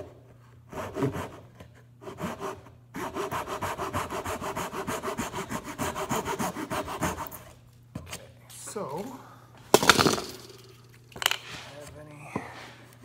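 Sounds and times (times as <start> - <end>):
hand saw cutting wood: 0.7 - 7.5.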